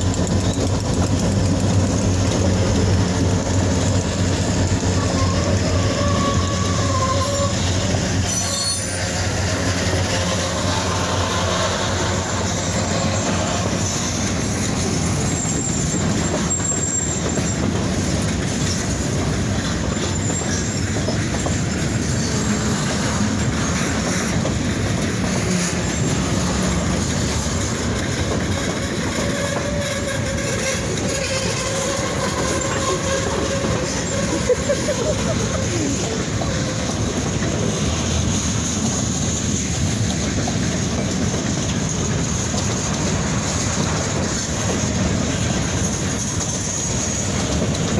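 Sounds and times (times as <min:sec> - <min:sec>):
train wheels rumbling on rails: 0:00.0 - 0:47.9
high wheel squeals: 0:00.1 - 0:24.4, 0:25.2 - 0:27.3, 0:28.4 - 0:37.4.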